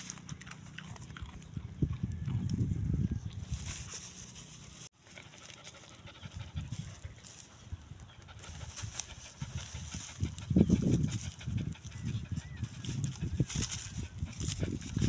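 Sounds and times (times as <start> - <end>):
dog chewing food: 0.0 - 2.5
dog panting: 5.0 - 7.2, 8.2 - 15.0.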